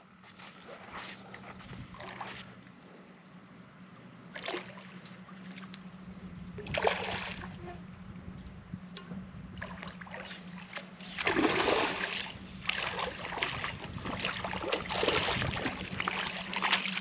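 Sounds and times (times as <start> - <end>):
fish splashing at water surface: 9.6 - 17.0.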